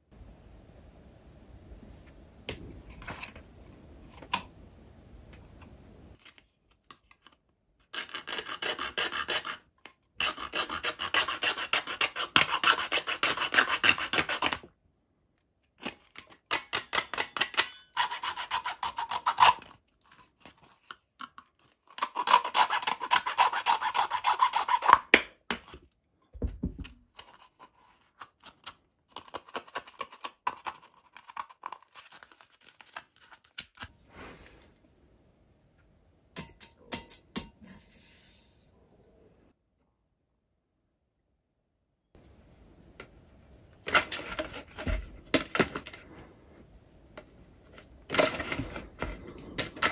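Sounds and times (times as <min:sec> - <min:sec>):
hand saw cutting plastic: 0:07.9 - 0:14.7, 0:17.0 - 0:19.8, 0:21.9 - 0:25.1.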